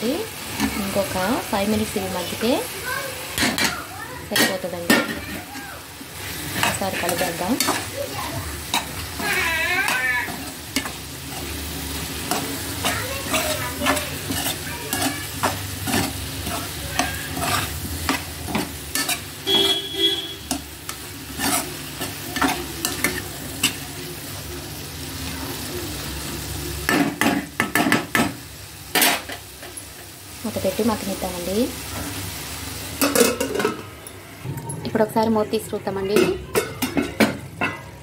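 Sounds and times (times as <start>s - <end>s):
curry sizzling: 0.0s - 38.0s
metal spoon scraping pan: 6.2s - 8.0s, 8.6s - 23.8s.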